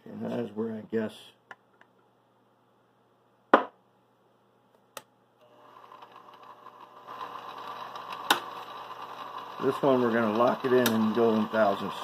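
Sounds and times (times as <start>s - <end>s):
mill spindle motor humming: 5.4s - 12.0s.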